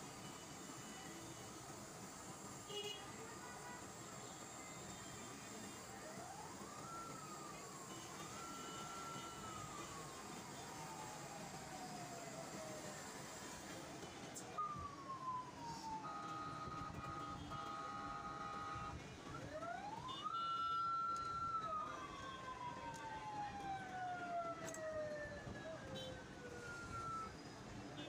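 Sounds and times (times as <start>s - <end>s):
siren wailing: 5.9s - 13.5s, 14.6s - 27.4s.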